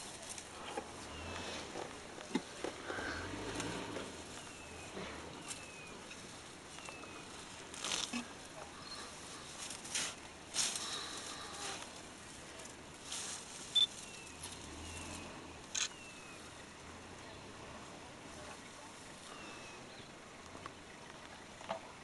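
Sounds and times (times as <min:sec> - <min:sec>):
leaves rustling: 0:00.0 - 0:22.0
branches snapping: 0:00.2 - 0:08.6, 0:09.3 - 0:12.0.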